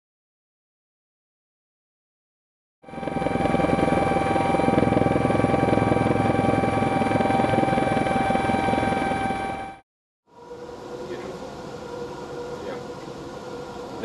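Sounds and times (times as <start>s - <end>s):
helicopter rotor chop: 2.8s - 9.8s.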